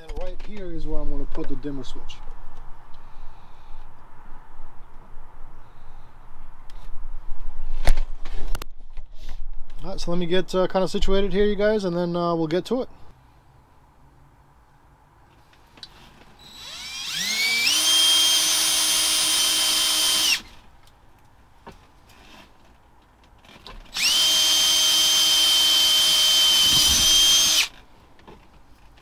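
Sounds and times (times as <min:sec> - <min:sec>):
cordless drill running: 0:16.4 - 0:20.6, 0:23.9 - 0:27.8.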